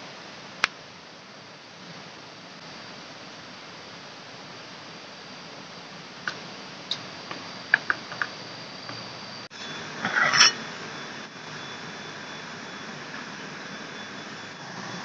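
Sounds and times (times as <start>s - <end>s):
steady hiss: 0.0s - 10.0s
metal pot scraping rattle: 10.0s - 10.6s.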